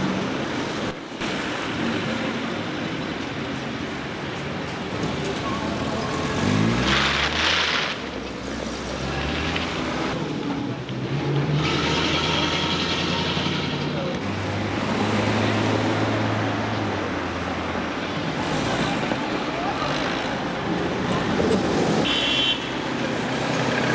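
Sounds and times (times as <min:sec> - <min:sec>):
car engines passing: 0:00.0 - 0:23.9
car accelerating: 0:05.8 - 0:17.5.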